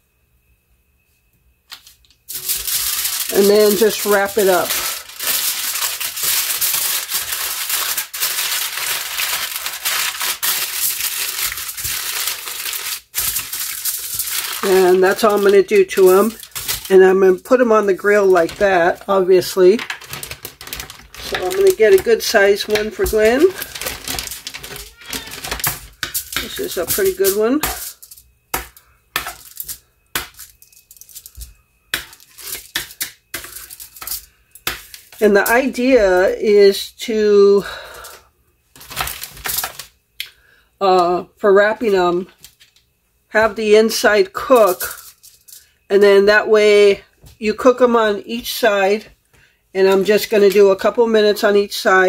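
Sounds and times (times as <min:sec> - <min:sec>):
aluminium foil crinkling: 0:01.7 - 0:36.9, 0:38.8 - 0:40.0, 0:44.4 - 0:45.8.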